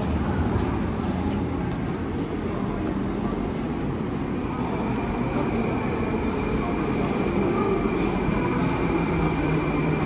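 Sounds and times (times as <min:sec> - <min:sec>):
train rumble: 0:00.0 - 0:10.0.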